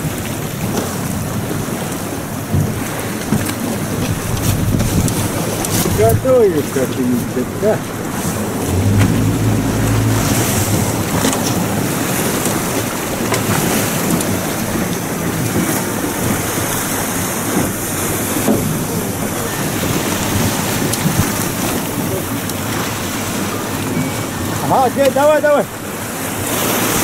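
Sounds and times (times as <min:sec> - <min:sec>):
outboard motor running: 0:00.0 - 0:27.0
water splashing along hull: 0:00.0 - 0:27.0
wind buffeting microphone: 0:02.4 - 0:24.6
low hum: 0:08.4 - 0:12.7.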